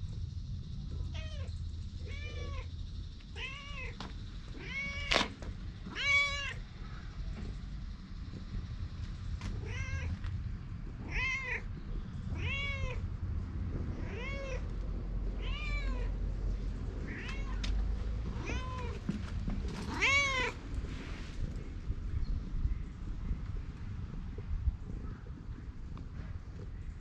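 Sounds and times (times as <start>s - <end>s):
cat meowing: 1.2s - 2.7s, 3.4s - 4.0s, 4.6s - 5.2s, 5.9s - 6.6s, 9.6s - 10.2s, 11.0s - 11.7s, 12.3s - 13.0s, 14.0s - 14.7s, 15.4s - 16.2s, 17.0s - 17.7s, 18.4s - 19.0s, 19.9s - 20.6s.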